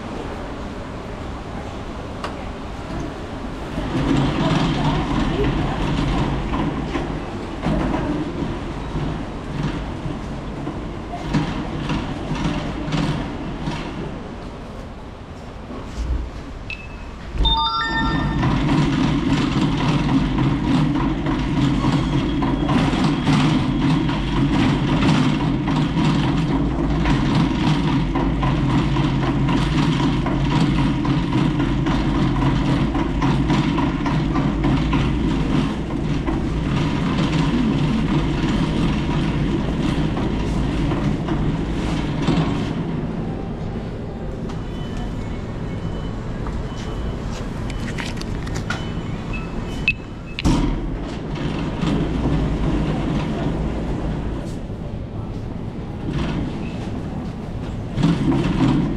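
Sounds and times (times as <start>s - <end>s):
shopping trolley wheels rumbling: 3.8s - 13.8s, 17.7s - 54.6s, 55.2s - 58.9s
short tones: 16.7s - 19.0s.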